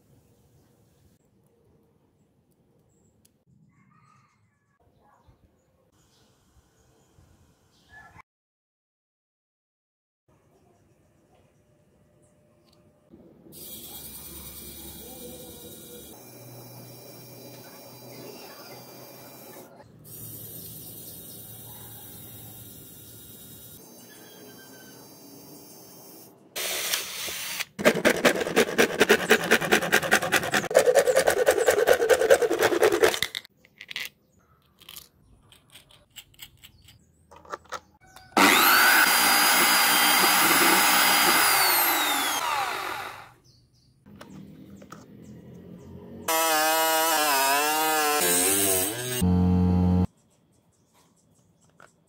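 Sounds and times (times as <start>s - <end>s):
electric drill running: 13.6s - 19.7s, 24.8s - 27.7s, 38.4s - 43.4s, 46.3s - 50.1s
fast rhythmic scraping: 27.8s - 33.3s.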